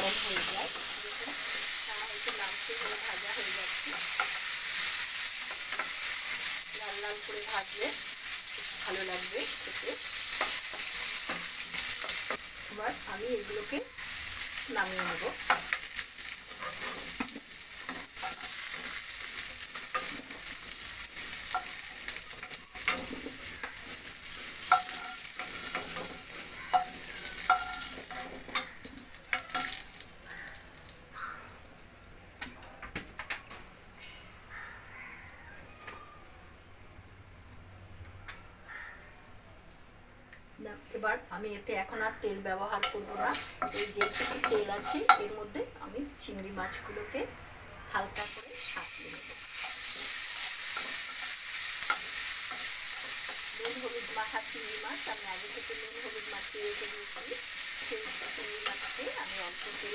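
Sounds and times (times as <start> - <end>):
vegetables sizzling in oil: 0.0 - 31.3, 42.3 - 46.3, 48.2 - 59.9
utensil scraping pan: 16.5 - 20.4, 42.8 - 45.2
metal spoon clicking against pan: 42.8 - 45.3.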